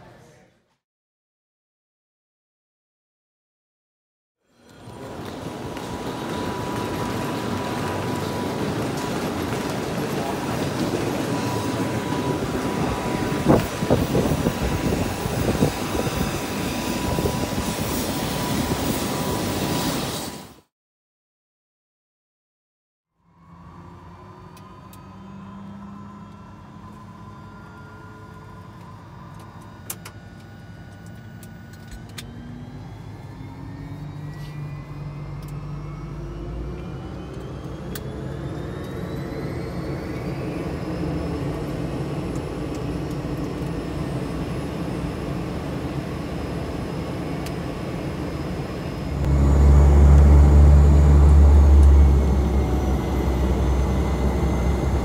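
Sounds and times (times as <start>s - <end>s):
aircraft engine whine spooling up: 4.5s - 20.7s, 23.2s - 55.0s
loud low drone: 4.9s - 19.4s, 32.3s - 55.0s.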